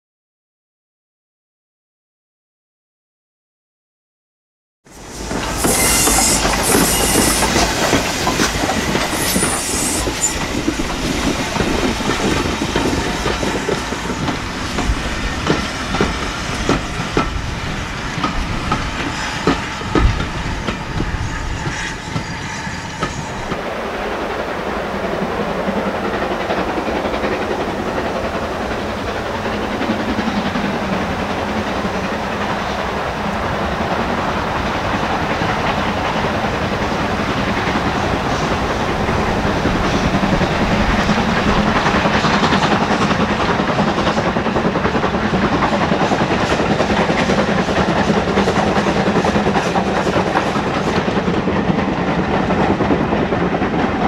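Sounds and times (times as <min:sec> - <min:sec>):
distant steam train rumble: 0:04.9 - 0:54.0
train wheels clicking over rail joints: 0:05.0 - 0:23.6, 0:34.6 - 0:54.0.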